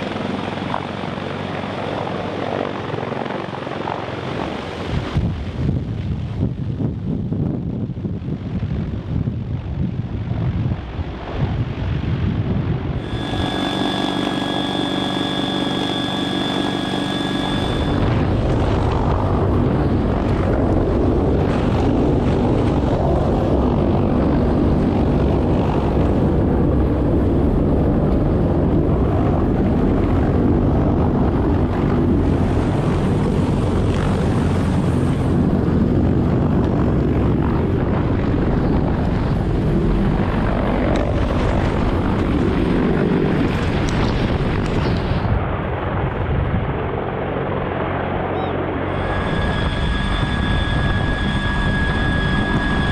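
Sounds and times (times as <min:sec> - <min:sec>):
helicopter engine rumble: 0:00.0 - 0:07.0, 0:07.6 - 0:52.9
helicopter rotor roar: 0:00.0 - 0:52.9
high-pitched whines: 0:13.0 - 0:18.4, 0:48.4 - 0:52.9.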